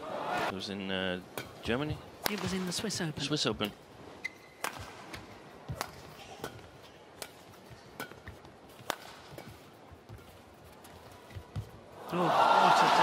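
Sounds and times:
rackets hitting shuttlecock: 0:01.3 - 0:02.8, 0:04.2 - 0:10.2.

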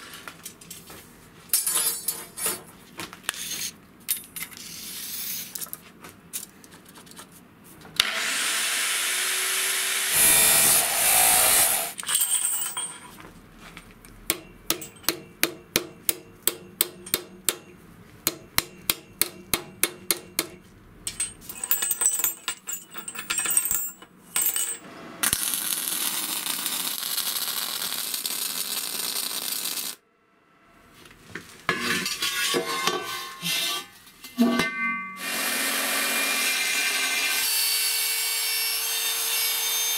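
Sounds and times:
power tool whining: 0:08.0 - 0:12.0
sharp metal taps: 0:14.3 - 0:21.4.

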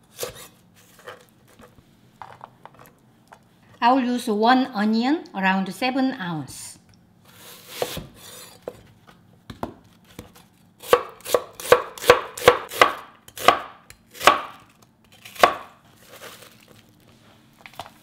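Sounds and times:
knife slicing onion: 0:00.0 - 0:01.1, 0:07.3 - 0:08.7, 0:10.0 - 0:16.2.

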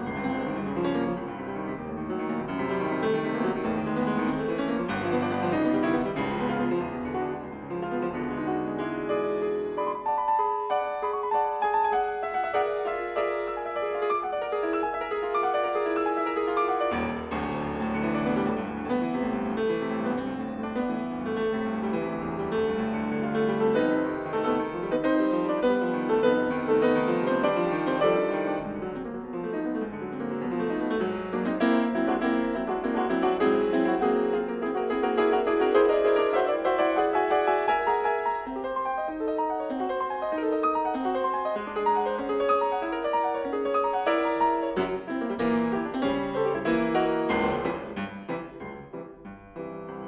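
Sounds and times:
piano music: 0:00.0 - 0:50.0.

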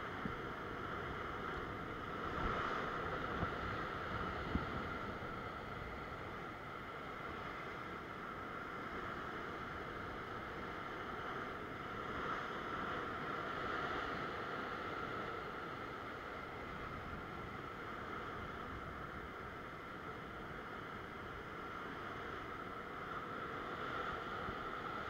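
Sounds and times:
waves washing over rocks: 0:00.0 - 0:25.0.

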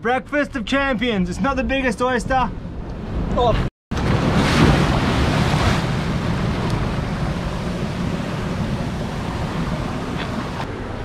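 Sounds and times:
water rushing off rock: 0:03.9 - 0:10.7
waves crashing against rocks: 0:04.0 - 0:10.7.

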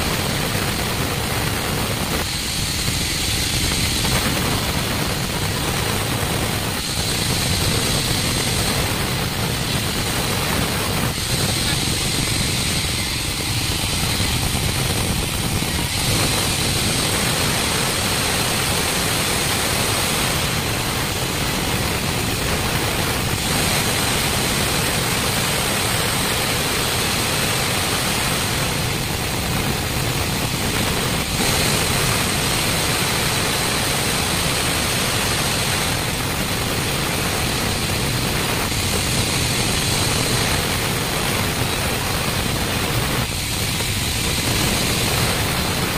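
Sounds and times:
band saw cutting log: 0:02.0 - 0:19.5.

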